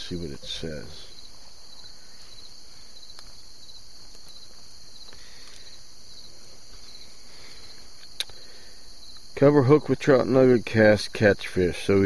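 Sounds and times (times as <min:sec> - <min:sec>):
insects chirring: 0:00.0 - 0:12.0
faint clicks: 0:04.0 - 0:05.7, 0:08.0 - 0:08.4.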